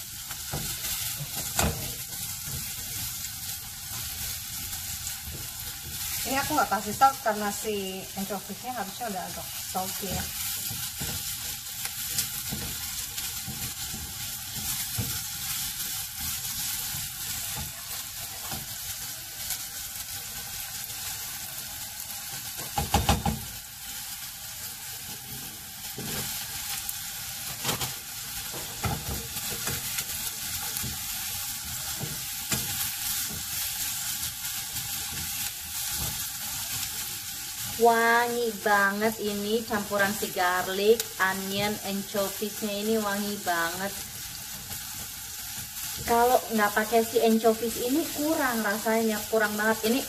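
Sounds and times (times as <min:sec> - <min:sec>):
food sizzling in oil: 0:00.0 - 0:50.0
utensil stirring and scraping pan: 0:00.3 - 0:20.1, 0:27.4 - 0:37.8.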